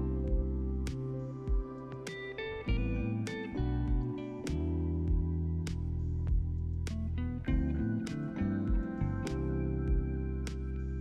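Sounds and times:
instrumental music with plucked notes: 6.8s - 11.0s.

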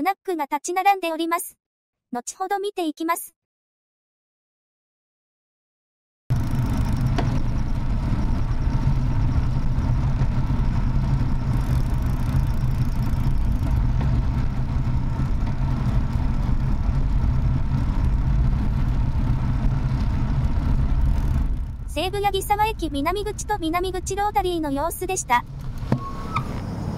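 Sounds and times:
motorcycle engine running: 6.3s - 24.4s
road and wind noise: 6.3s - 26.9s.

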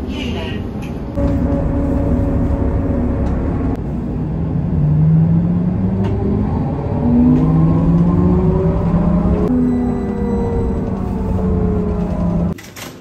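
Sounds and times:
low vehicle rumble: 0.8s - 12.6s
held tones rising in pitch: 5.1s - 12.6s.

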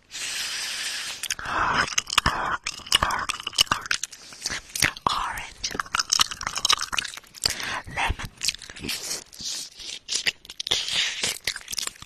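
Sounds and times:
breathy hisses: 0.0s - 3.2s
wet lip smacks and clicks: 1.2s - 12.0s.

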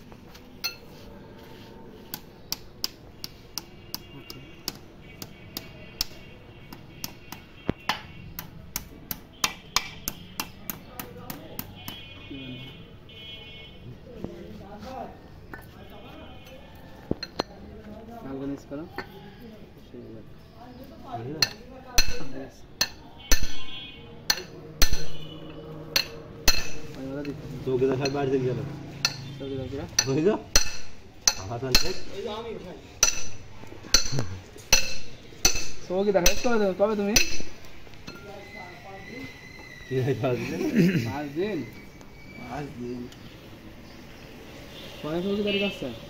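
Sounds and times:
hammer striking steel bar: 8.8s - 11.7s, 21.4s - 25.3s, 25.9s - 26.9s, 30.0s - 32.1s, 33.0s - 36.6s, 37.2s - 38.2s.

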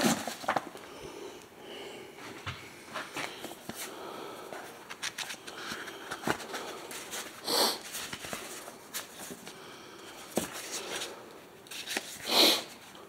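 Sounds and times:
person sniffing: 5.6s - 8.0s, 12.2s - 12.8s.

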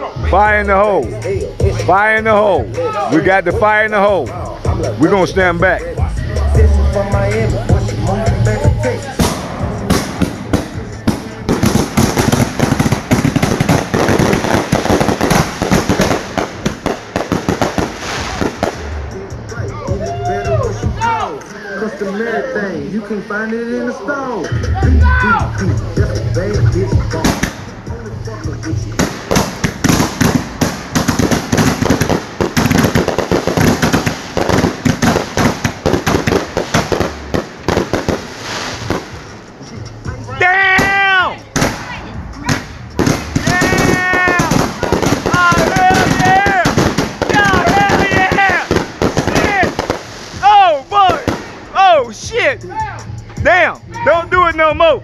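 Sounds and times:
fireworks bangs: 9.2s - 19.2s, 27.2s - 27.8s, 28.9s - 39.5s, 40.8s - 51.8s.

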